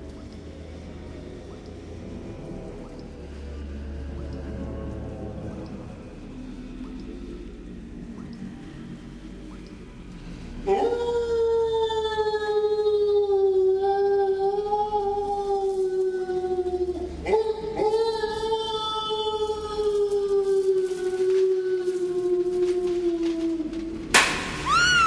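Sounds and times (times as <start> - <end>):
low rumble: 0.0 - 24.8
ghostly wailing voice: 10.4 - 25.0.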